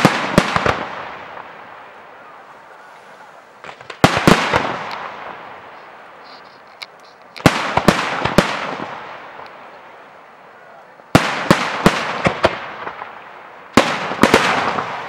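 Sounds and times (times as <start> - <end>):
firework shells bursting: 2.7 - 9.7.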